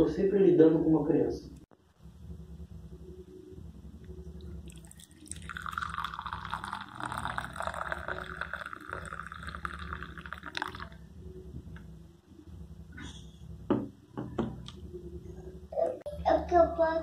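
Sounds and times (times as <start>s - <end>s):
coffee pouring into ceramic cup: 4.7s - 11.0s.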